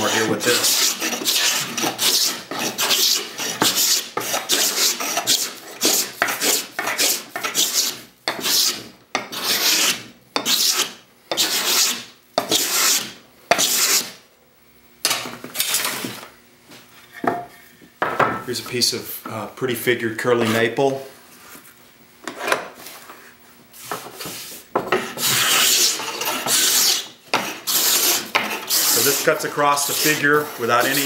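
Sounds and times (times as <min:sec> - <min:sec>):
scraper rasping across wood: 0:00.0 - 0:14.1, 0:25.0 - 0:31.0.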